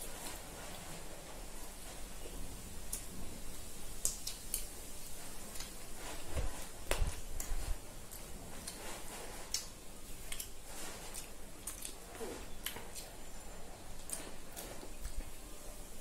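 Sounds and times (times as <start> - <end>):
wet mouth smacks and chewing: 4.0 - 4.7, 9.5 - 12.0.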